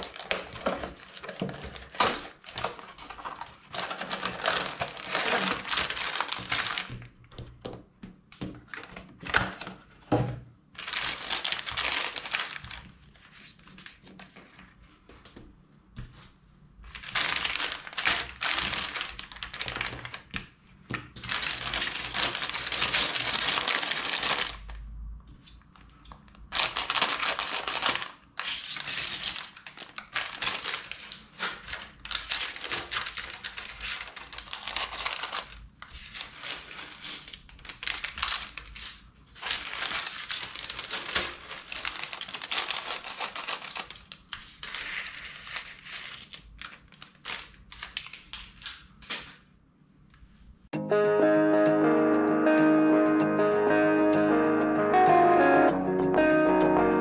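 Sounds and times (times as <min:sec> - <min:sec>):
plastic pieces rattling: 0:00.0 - 0:07.0
plastic bags crinkling: 0:00.0 - 0:07.2, 0:10.8 - 0:14.4, 0:16.9 - 0:20.5, 0:21.1 - 0:24.8, 0:26.3 - 0:49.1.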